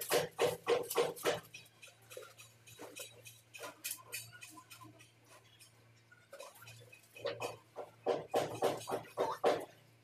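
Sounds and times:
metal bowl scraping cement: 1.1s - 7.7s.

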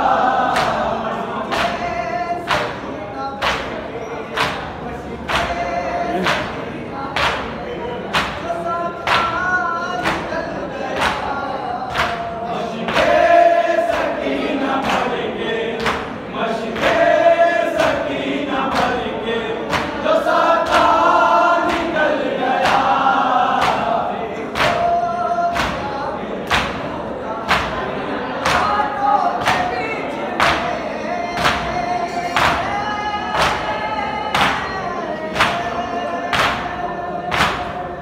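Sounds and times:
men chanting in chorus: 0.0s - 38.0s.

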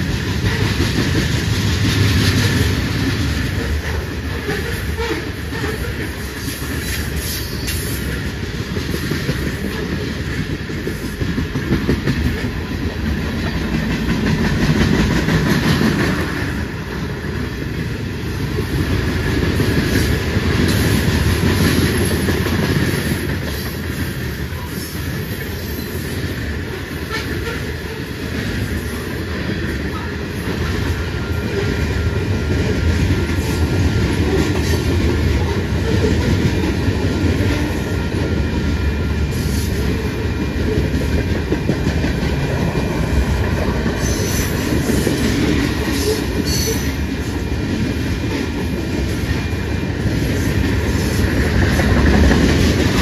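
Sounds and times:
train wheels rumbling on rail: 0.0s - 53.0s.

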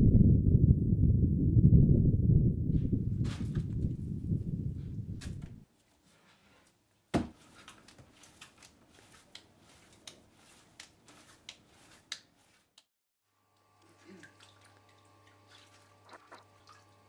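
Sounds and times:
low rumbling: 0.0s - 5.6s
clay slammed onto wooden bench: 7.1s - 7.4s
hands slapping clay: 7.1s - 12.9s.

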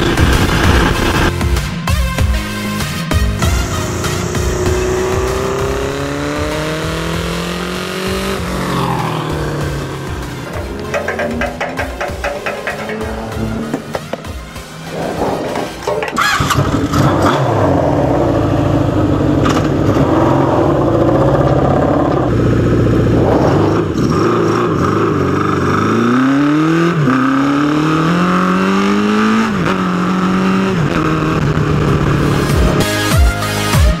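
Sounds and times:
motorcycle engine revving: 3.0s - 33.2s
motorcycle engine starting and idling: 3.4s - 23.2s.

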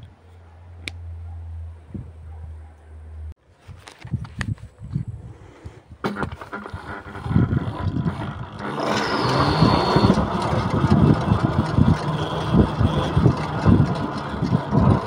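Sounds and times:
road and wind noise: 0.0s - 15.0s
wind rumble on microphone: 1.8s - 2.3s, 3.6s - 15.0s
electric motor whine: 6.0s - 15.0s.

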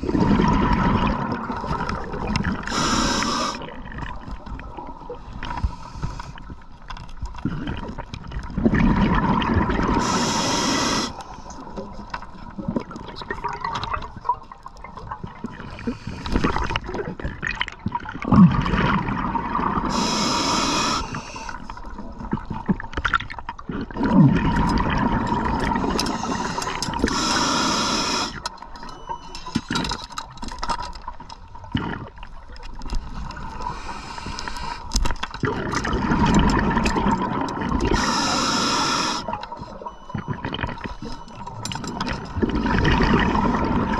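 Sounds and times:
diver's breath bubbles rushing: 0.0s - 3.8s, 35.4s - 39.4s
underwater bubbling and gurgling: 0.0s - 43.9s.

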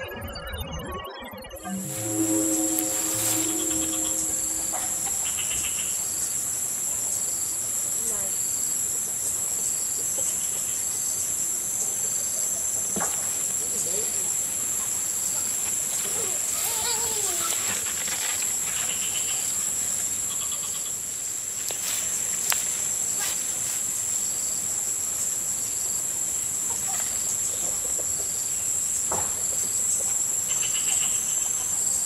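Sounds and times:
chirping trills: 1.6s - 5.9s
insects shrill drone: 1.6s - 7.2s.

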